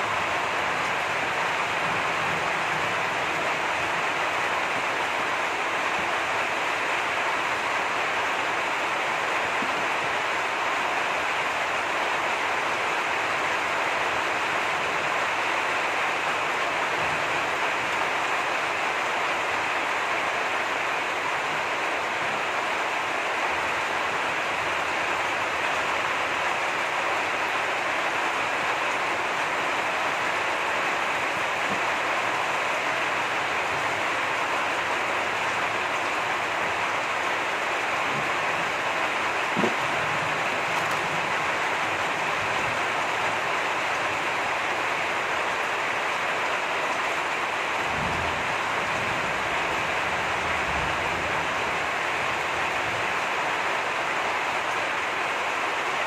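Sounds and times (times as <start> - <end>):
heavy rain: 0.0 - 56.0.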